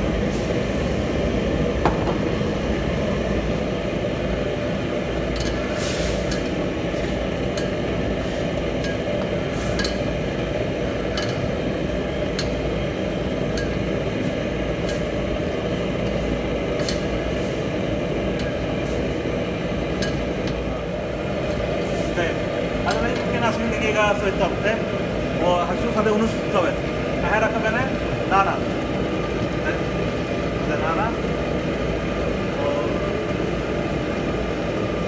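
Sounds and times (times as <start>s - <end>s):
gas wok burner roaring: 0.0s - 35.0s.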